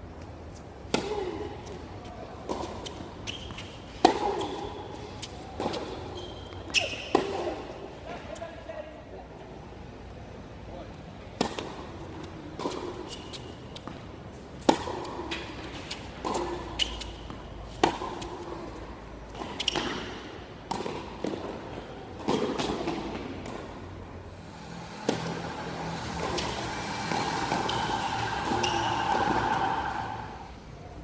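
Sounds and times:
tennis ball struck by racquets: 2.4 - 4.7, 11.4 - 11.9, 14.6 - 23.8, 24.8 - 30.3.

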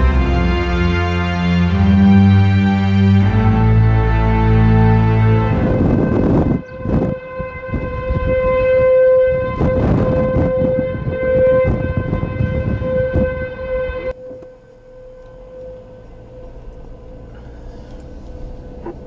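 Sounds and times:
warning siren steady pitch: 0.0 - 19.0
wind buffeting microphone: 4.5 - 19.0.

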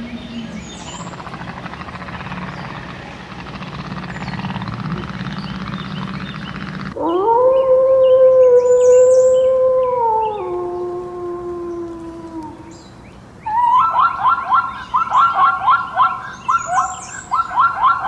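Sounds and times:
steady rushing noise: 0.0 - 7.0
wolf howling: 6.9 - 12.7.

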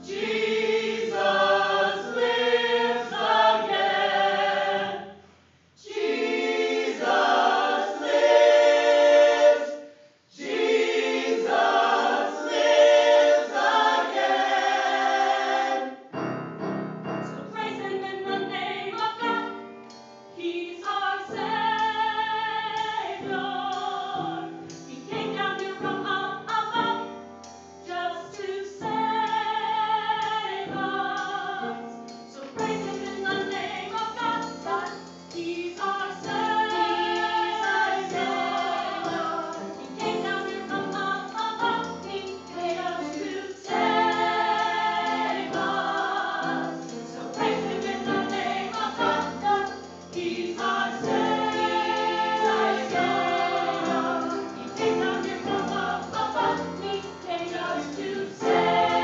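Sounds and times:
mixed choir singing: 0.0 - 5.2, 5.8 - 16.1, 32.4 - 59.0.

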